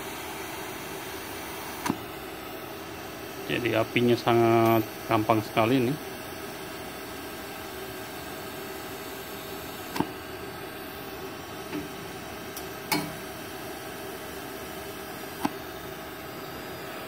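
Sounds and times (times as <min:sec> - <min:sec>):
welding arc hissing: 0:00.0 - 0:17.0
sharp welder clicks: 0:12.6 - 0:13.2.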